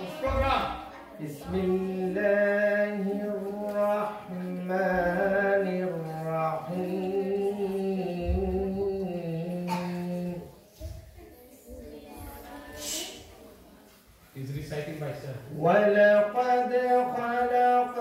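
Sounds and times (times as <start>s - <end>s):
man chanting melodically: 15.4s - 18.0s.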